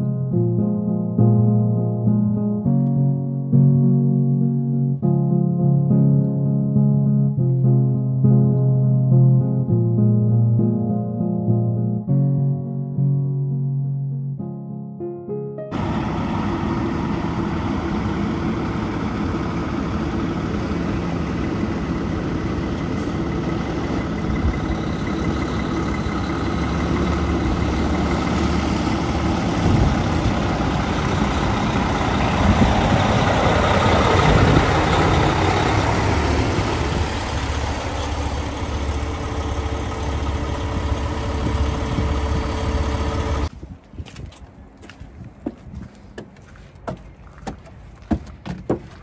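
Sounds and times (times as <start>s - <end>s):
truck diesel engine running: 15.7s - 43.5s.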